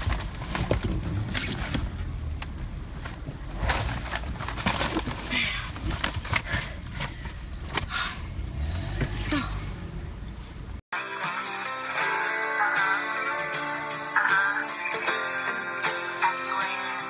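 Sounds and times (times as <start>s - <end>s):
paper bag rustling and crinkling: 2.9s - 7.2s.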